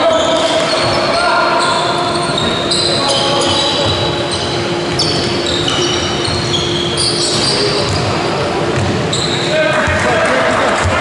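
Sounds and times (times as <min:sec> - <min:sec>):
sneakers squeaking on wooden floor: 0:00.0 - 0:10.0
basketball bouncing: 0:07.8 - 0:09.0.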